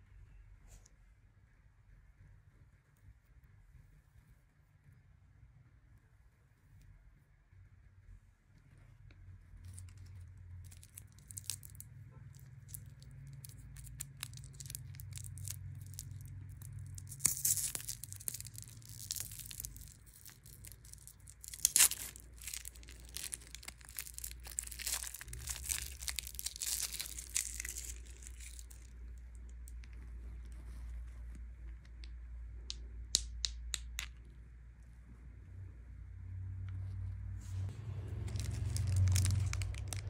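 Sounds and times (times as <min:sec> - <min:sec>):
low steady hum: 0:00.0 - 0:40.0
plastic wrapper crinkling: 0:09.6 - 0:30.8, 0:38.1 - 0:40.0.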